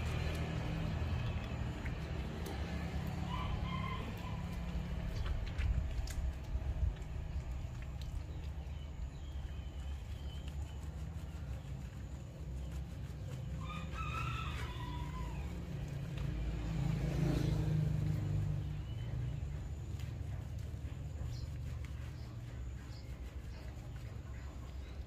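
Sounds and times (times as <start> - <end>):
low rumble: 0.0 - 14.0
rooster crowing: 3.2 - 4.5, 13.6 - 15.8.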